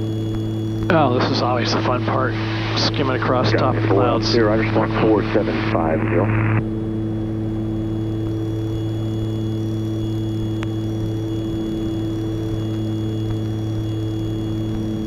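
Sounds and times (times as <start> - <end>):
aircraft engines droning in cabin: 0.0 - 15.0
faint high whine: 0.0 - 15.0.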